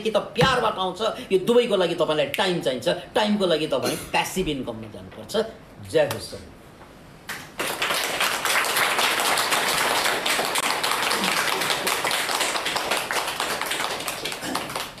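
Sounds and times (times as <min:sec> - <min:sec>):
crowd applauding: 0:07.6 - 0:15.0.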